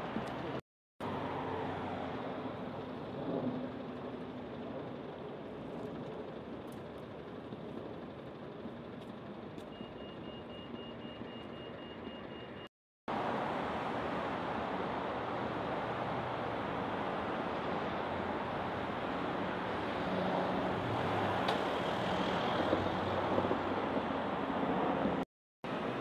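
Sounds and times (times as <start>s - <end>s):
cars driving past: 13.1s - 26.0s.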